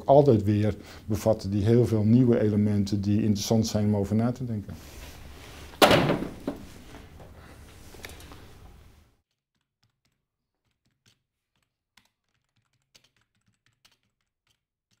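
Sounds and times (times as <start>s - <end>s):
room noise: 0.0s - 9.2s.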